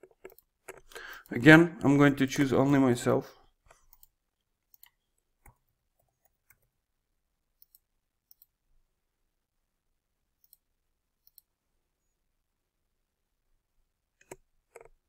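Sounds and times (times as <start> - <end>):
computer mouse clicks: 0.0 - 1.3, 3.7 - 6.7, 7.6 - 8.6, 10.4 - 11.5, 14.2 - 15.0.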